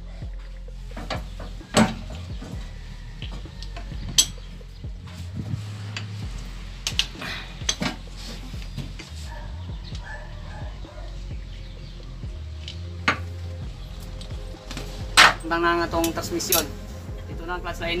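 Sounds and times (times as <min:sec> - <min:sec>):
sharp metal clanks: 0:04.0 - 0:04.6.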